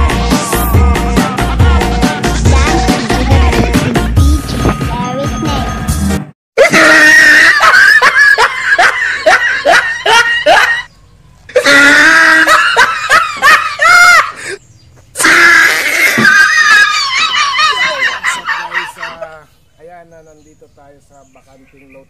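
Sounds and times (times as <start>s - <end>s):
loud laughter: 6.6s - 10.9s, 11.5s - 14.6s, 15.2s - 19.5s.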